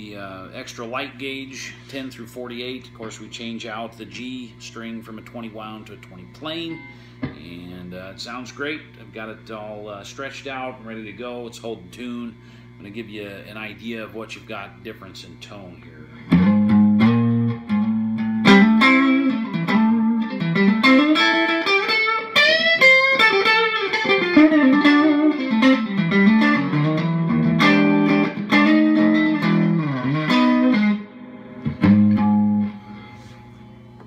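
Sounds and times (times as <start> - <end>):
electric guitar single-note licks: 16.2 - 34.0.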